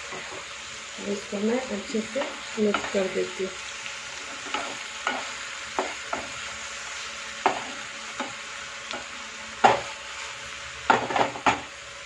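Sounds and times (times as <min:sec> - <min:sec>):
spatula scraping pan: 0:00.0 - 0:00.6, 0:04.1 - 0:06.6, 0:07.4 - 0:08.4, 0:09.0 - 0:11.6
vegetables sizzling in pan: 0:00.0 - 0:12.0.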